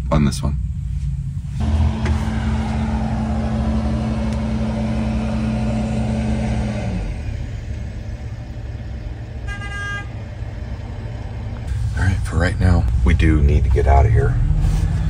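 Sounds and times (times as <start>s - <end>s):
steady hum: 1.4s - 11.8s
diesel engine running: 1.5s - 15.0s.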